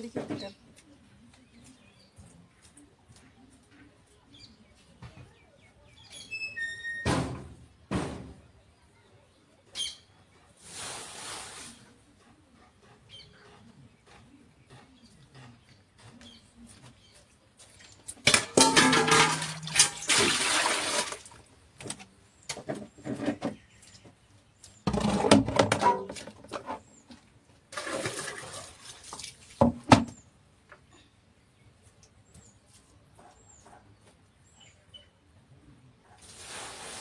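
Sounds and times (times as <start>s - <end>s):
water pouring and splashing: 18.6s - 21.6s, 27.7s - 29.9s, 36.2s - 37.0s.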